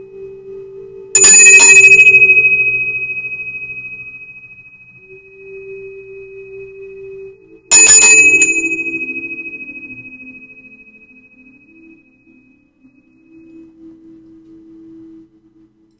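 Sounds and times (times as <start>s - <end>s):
small handbell ringing: 1.2s - 4.4s, 7.7s - 10.6s.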